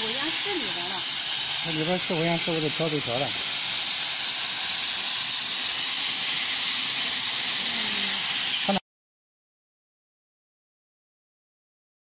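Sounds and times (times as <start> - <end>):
plasma torch hissing: 0.0 - 8.8.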